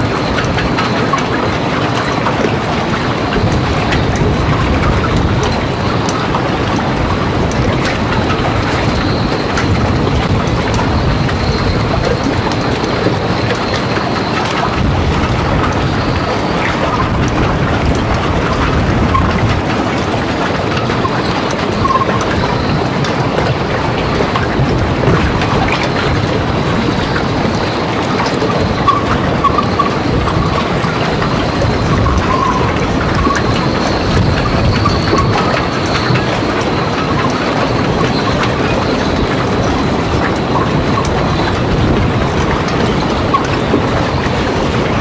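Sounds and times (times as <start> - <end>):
sharp clicks and ticks: 0.0 - 45.0
wind buffeting microphone: 0.0 - 45.0.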